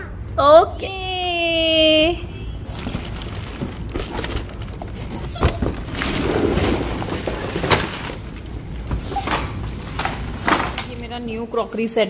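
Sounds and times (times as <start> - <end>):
plastic wrapping crinkling: 2.6 - 11.3.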